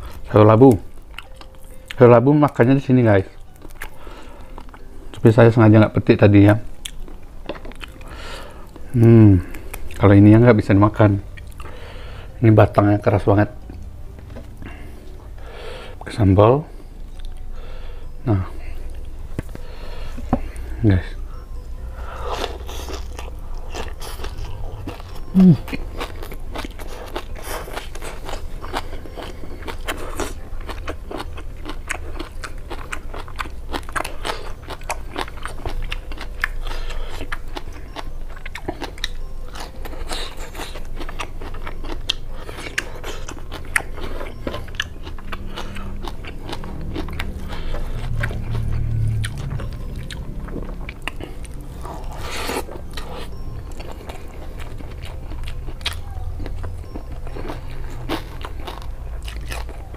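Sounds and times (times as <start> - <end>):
person chewing crisp vegetables: 0.0 - 59.9.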